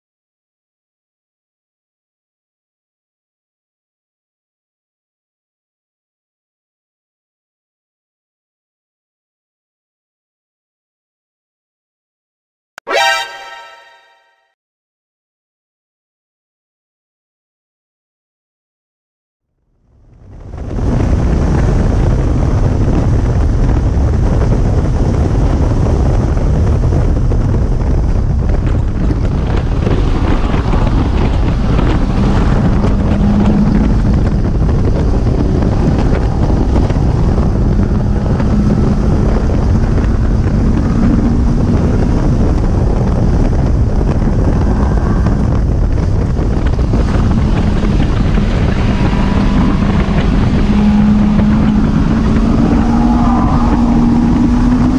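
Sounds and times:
wind noise on microphone: 0:19.8 - 0:54.9
low drone: 0:29.6 - 0:54.9
car engine revving hard: 0:29.9 - 0:42.4, 0:46.7 - 0:54.9.

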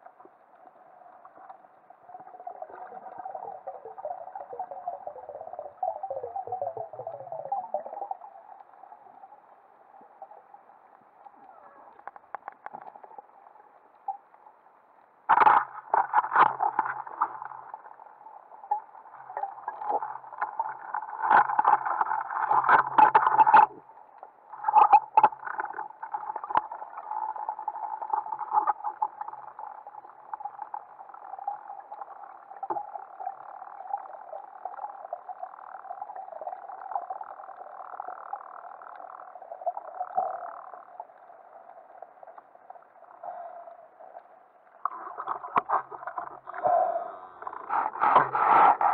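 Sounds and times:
spear clicking and scraping on rock: 0:47.5 - 0:48.9.

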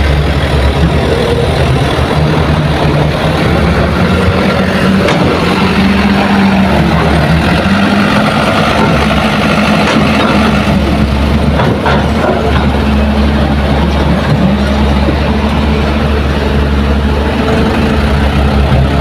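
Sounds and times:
diesel engines running: 0:00.0 - 0:19.0
dump truck idling: 0:00.0 - 0:19.0
excavator working: 0:00.0 - 0:19.0.

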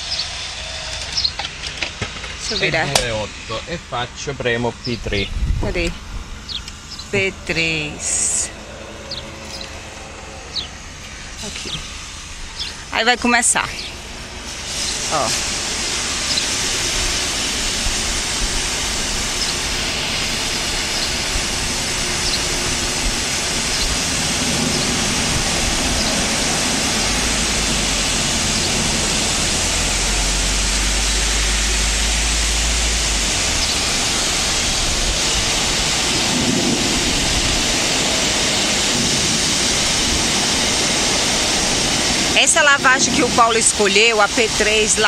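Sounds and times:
low rumble: 0:00.0 - 0:45.0
water spray hissing: 0:11.0 - 0:45.0.

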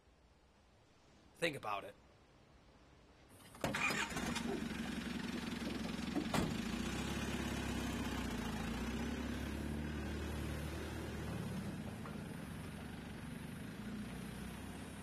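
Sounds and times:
suv engine idling: 0:03.6 - 0:10.3
car door slamming shut: 0:06.2 - 0:06.6.

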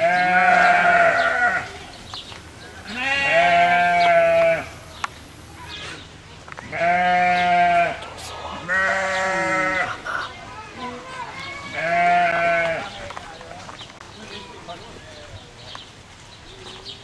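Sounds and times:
farm animal bleating: 0:00.0 - 0:01.8, 0:02.8 - 0:04.8, 0:06.7 - 0:10.2, 0:10.8 - 0:13.0.

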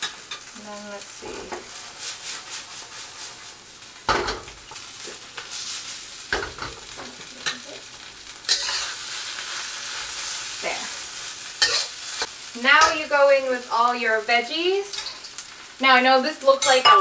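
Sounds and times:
noodles sizzling in a wok: 0:00.0 - 0:17.0
metal tongs scraping a pan: 0:06.4 - 0:07.8, 0:08.5 - 0:10.9, 0:11.6 - 0:13.1, 0:14.8 - 0:15.4, 0:16.4 - 0:17.0.

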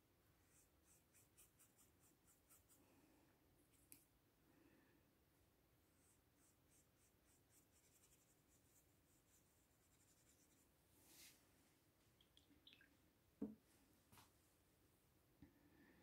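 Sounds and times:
brush strokes on paper: 0:00.4 - 0:02.9, 0:05.8 - 0:11.6.

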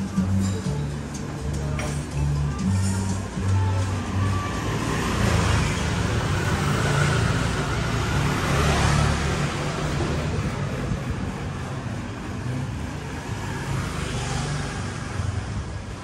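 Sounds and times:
street noise: 0:00.0 - 0:16.0
motor scooter engine passing: 0:04.5 - 0:15.4.

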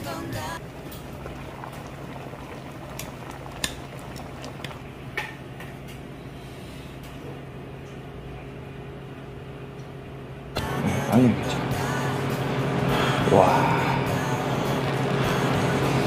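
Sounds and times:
stew bubbling in a pot: 0:00.6 - 0:05.8.

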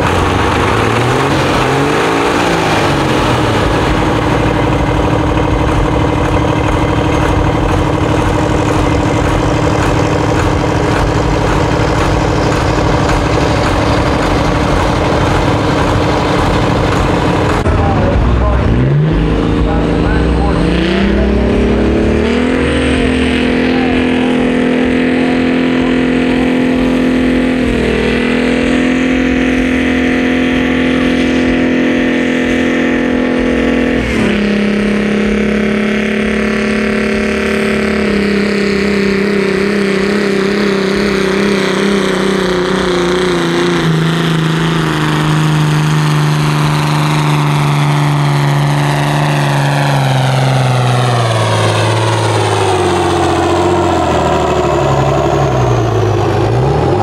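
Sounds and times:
tractor engine under load: 0:00.0 - 0:57.0.

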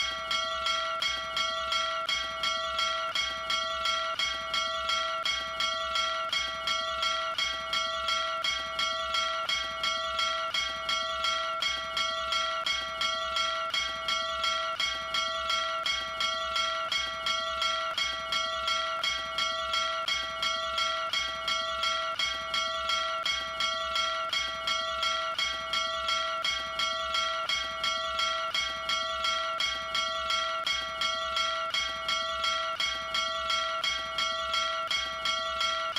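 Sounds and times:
small brass bell ringing: 0:00.0 - 0:35.9.

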